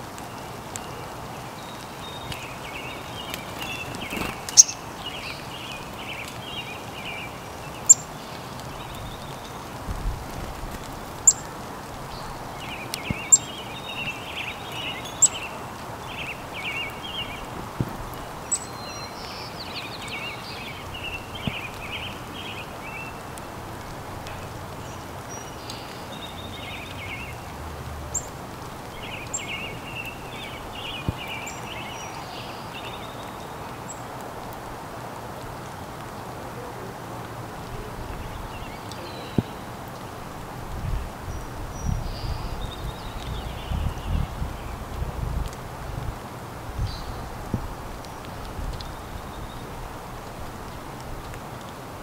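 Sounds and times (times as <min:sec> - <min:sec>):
small birds twittering: 0:00.0 - 0:34.2, 0:37.6 - 0:45.6, 0:46.7 - 0:51.8
outdoor hiss: 0:00.0 - 0:52.0
finches clicking at a feeder: 0:03.2 - 0:05.4.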